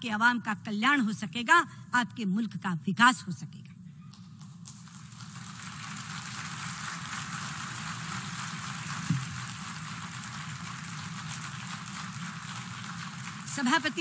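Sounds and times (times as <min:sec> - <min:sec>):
audience applauding: 0:04.7 - 0:14.0.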